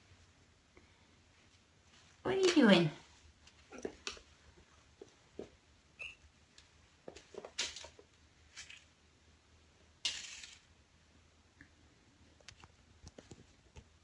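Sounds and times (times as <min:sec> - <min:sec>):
kittens playing with toys on floor: 0:00.7 - 0:05.6, 0:06.4 - 0:09.0, 0:10.0 - 0:10.8.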